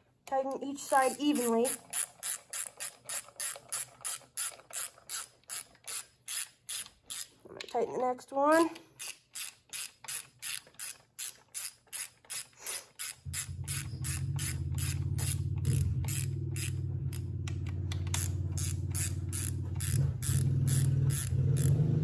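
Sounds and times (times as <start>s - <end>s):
ratchet wrench clicking: 0.9s - 7.4s, 8.5s - 22.0s
steady low hum: 13.2s - 22.0s.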